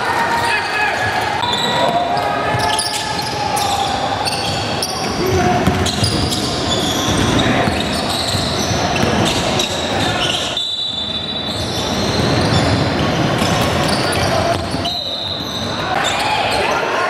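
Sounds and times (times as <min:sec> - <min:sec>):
players and spectators noise: 0:00.0 - 0:17.0
basketball bouncing on court: 0:01.5 - 0:10.2, 0:11.5 - 0:16.2.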